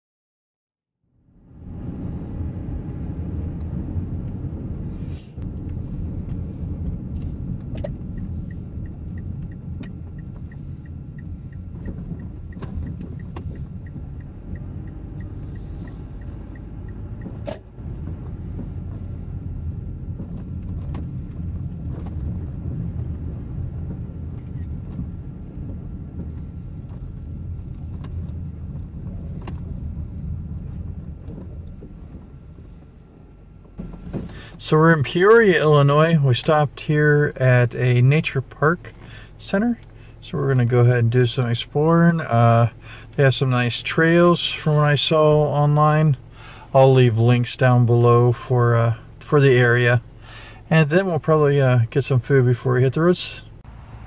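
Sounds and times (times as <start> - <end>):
car road and engine rumble: 0.9 - 54.0
turn signal ticking: 5.4 - 52.5.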